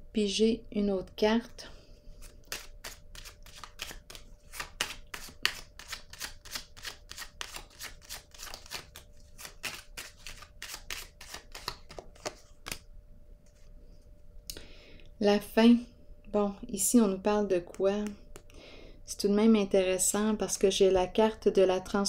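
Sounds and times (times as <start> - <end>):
cards being shuffled: 2.2 - 12.8.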